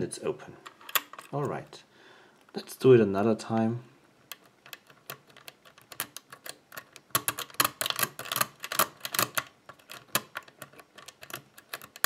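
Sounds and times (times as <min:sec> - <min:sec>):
lock pick metallic clicks: 0:00.6 - 0:01.6, 0:04.2 - 0:12.0.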